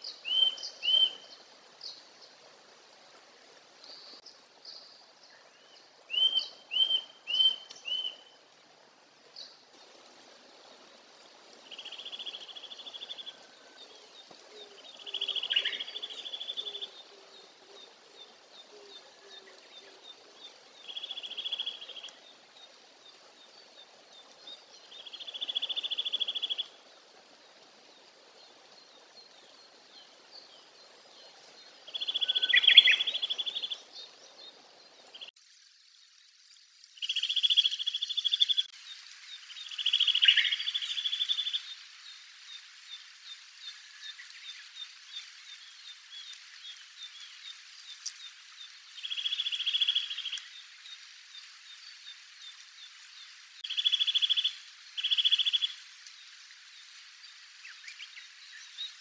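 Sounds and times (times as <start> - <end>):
faint high bird chirps: 31.9 - 33.9.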